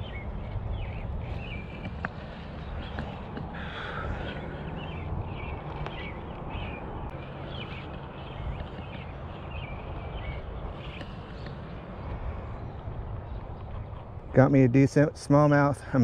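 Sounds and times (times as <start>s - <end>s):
low microphone rumble: 0.0s - 14.7s
small birds chirping: 0.0s - 16.0s.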